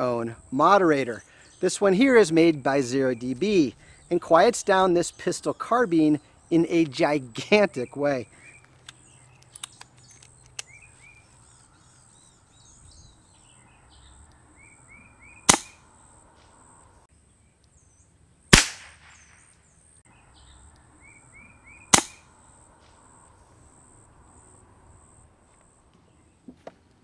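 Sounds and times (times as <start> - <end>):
air pistol shots: 15.5 - 15.8, 18.5 - 19.5, 21.9 - 22.2.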